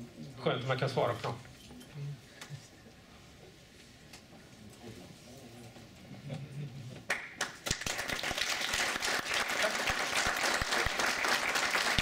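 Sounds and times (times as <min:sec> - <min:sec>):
audience applause: 0:07.1 - 0:12.0.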